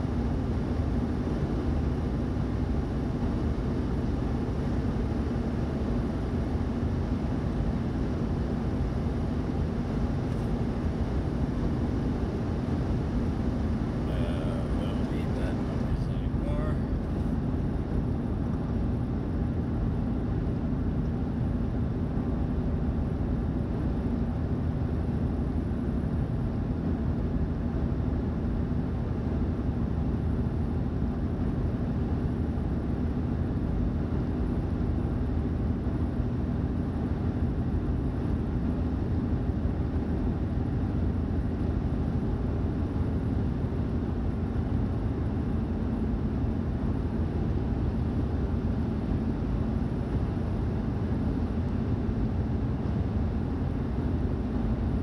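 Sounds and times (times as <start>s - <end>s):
vehicle cabin road noise: 14.0s - 17.4s.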